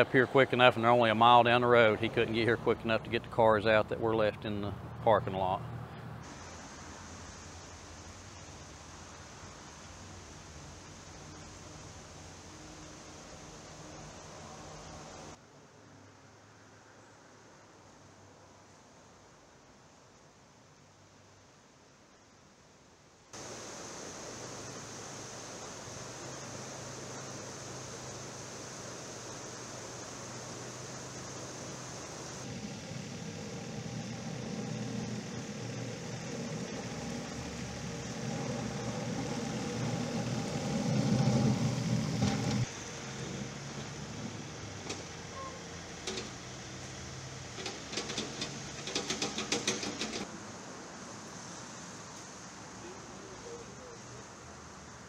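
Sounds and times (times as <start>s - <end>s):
outdoor rushing noise: 23.4s - 53.9s
tractor diesel engine running: 25.9s - 50.2s
loader bucket scraping mud: 32.5s - 45.1s
quick clicks: 47.6s - 50.3s.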